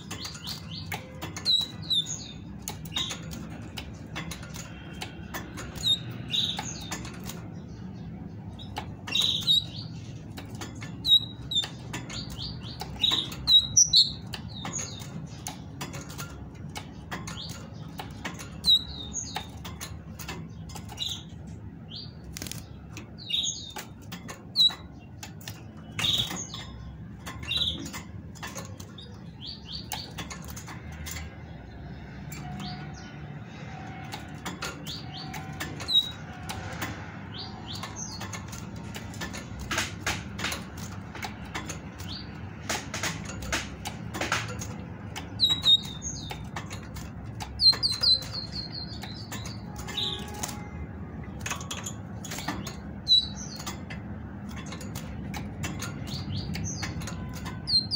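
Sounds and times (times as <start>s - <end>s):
bird feet clicking on wire bars: 0.0s - 57.9s
high chirping bird calls: 0.0s - 57.9s.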